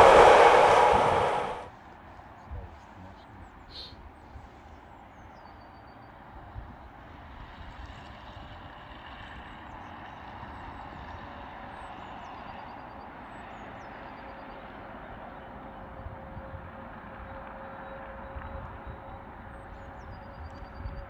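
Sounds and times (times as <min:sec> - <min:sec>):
cars passing: 0:00.0 - 0:01.7.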